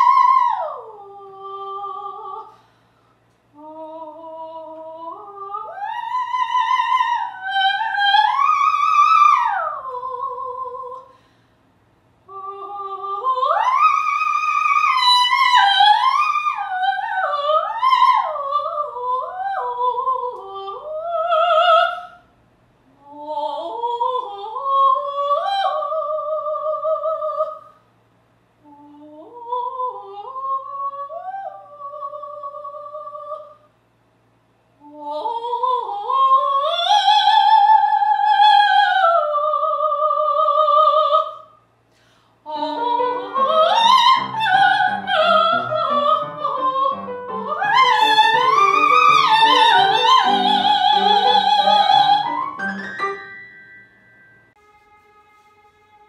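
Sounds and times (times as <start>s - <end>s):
woman singing opera: 0.0s - 2.6s, 3.5s - 11.2s, 12.3s - 22.2s, 22.9s - 27.8s, 28.6s - 33.6s, 34.8s - 41.5s, 42.4s - 53.2s
piano chords: 42.6s - 54.6s.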